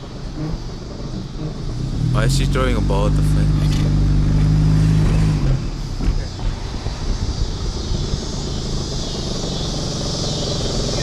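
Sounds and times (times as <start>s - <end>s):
engine hum: 0.0s - 11.0s
wind rumbling on microphone: 3.6s - 10.3s.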